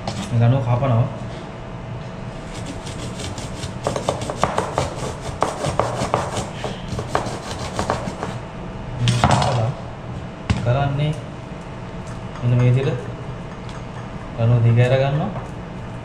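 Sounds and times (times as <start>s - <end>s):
knife blade scraping: 2.4s - 8.4s.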